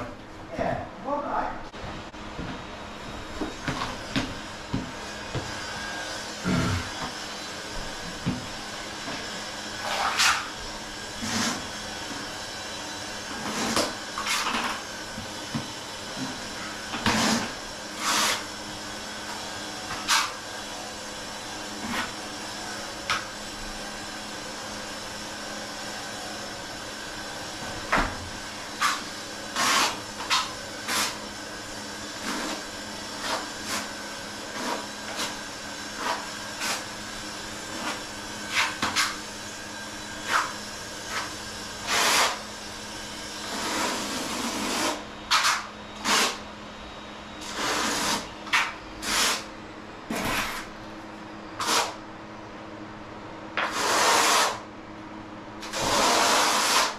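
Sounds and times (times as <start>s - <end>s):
steady machine hum: 0.0s - 56.9s
trowel scraping mortar: 11.2s - 11.7s, 13.4s - 14.8s, 17.0s - 18.4s, 28.8s - 31.2s, 32.2s - 33.9s, 34.5s - 35.4s, 36.0s - 36.9s, 37.7s - 39.2s, 41.9s - 42.4s, 43.5s - 46.4s, 47.4s - 48.3s, 49.0s - 49.4s, 50.1s - 50.7s, 51.6s - 52.0s, 53.6s - 54.6s, 55.7s - 56.9s.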